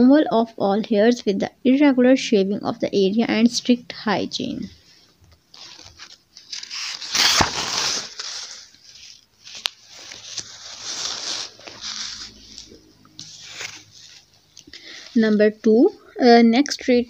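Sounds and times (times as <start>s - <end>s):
book pages flipping: 5.0s - 14.8s.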